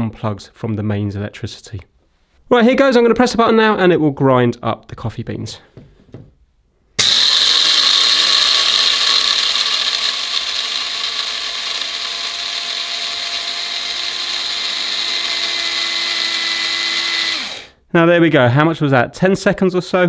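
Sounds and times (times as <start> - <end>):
coffee grinder grinding beans: 7.0 - 17.8.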